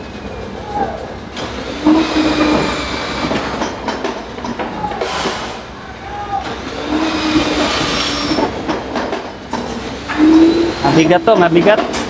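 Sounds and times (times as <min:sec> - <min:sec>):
machine hum: 0:00.0 - 0:12.0
metal scraping and clanking: 0:01.4 - 0:05.6, 0:06.7 - 0:12.0.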